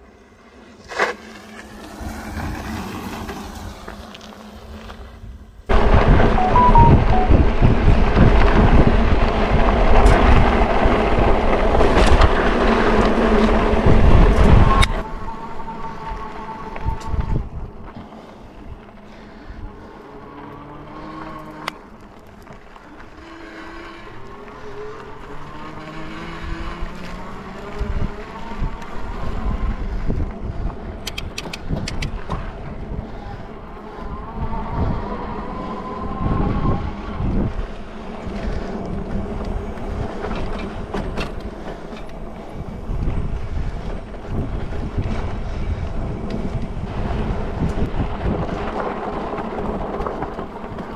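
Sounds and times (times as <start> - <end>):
wind buffeting microphone: 5.7 - 23.2, 24.1 - 50.9
tyres rumbling on dirt: 37.8 - 50.9.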